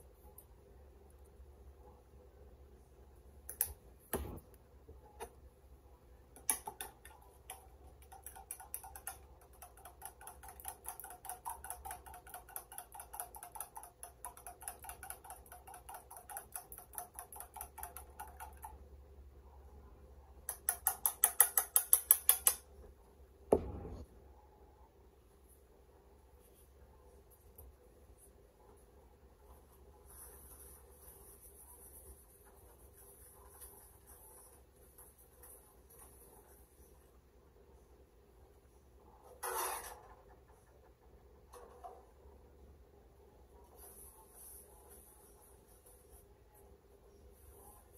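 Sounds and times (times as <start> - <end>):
fork beating eggs in a cup: 6.4 - 18.8, 20.5 - 22.6.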